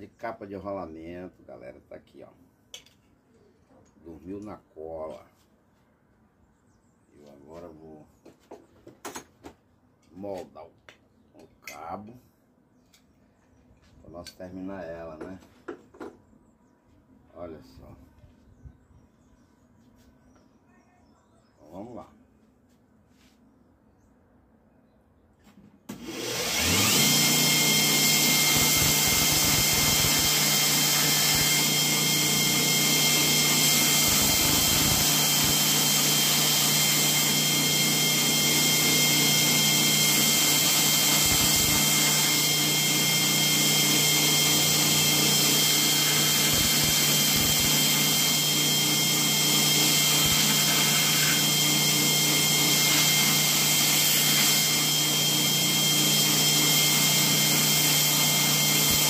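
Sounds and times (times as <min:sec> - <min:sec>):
belt grinder sanding wood: 0:26.1 - 0:59.0.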